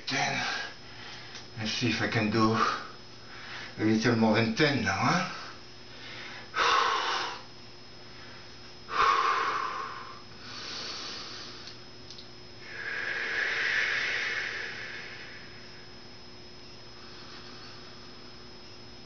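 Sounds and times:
man breathing heavily: 0:00.3 - 0:01.4, 0:02.5 - 0:03.8, 0:05.3 - 0:11.8, 0:12.6 - 0:15.9.

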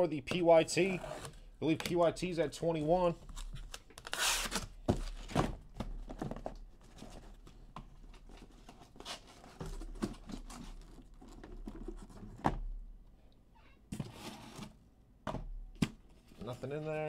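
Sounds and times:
cardboard scraping and rustling: 0:14.0 - 0:14.8.

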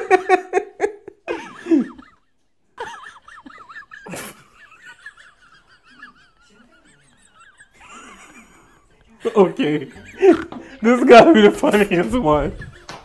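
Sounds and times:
pulsing laughter: 0:02.8 - 0:08.9.

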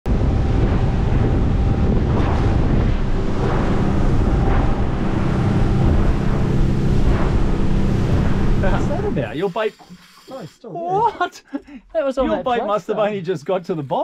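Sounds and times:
wind noise on microphone: 0:00.1 - 0:09.3
low engine hum: 0:00.1 - 0:09.4
water rushing past hull: 0:00.1 - 0:09.7.

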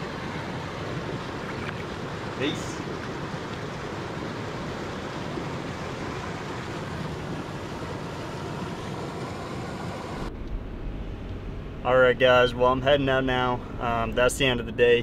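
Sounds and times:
stream running over stones: 0:00.0 - 0:10.3.

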